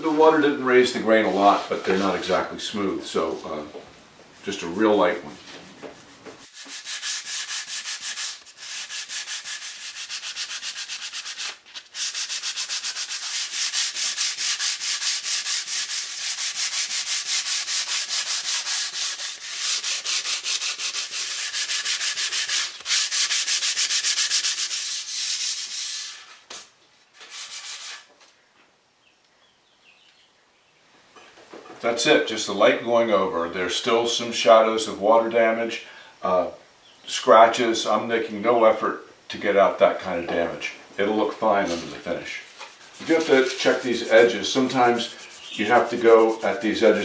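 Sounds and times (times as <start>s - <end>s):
sandpaper rubbing on wood: 6.0s - 28.1s, 42.6s - 47.0s.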